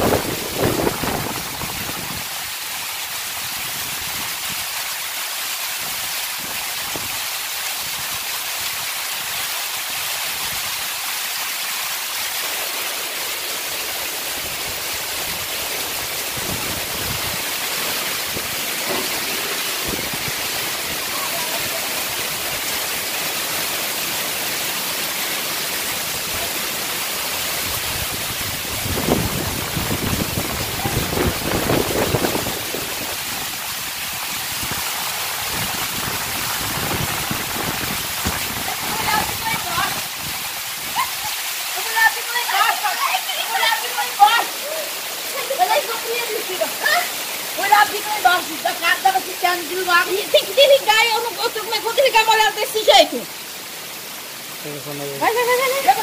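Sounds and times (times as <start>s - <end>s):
wind buffeting microphone: 0.0s - 2.3s, 14.7s - 21.1s, 27.6s - 33.5s, 34.1s - 41.0s
heavy rain pouring: 0.0s - 56.0s.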